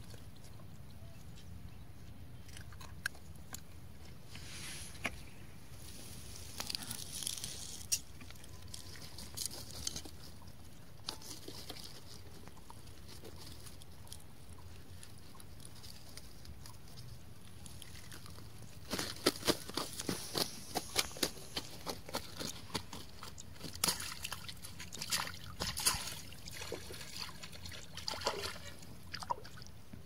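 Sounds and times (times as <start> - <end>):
hands handling fish clicks and rustles: 6.4 - 29.1.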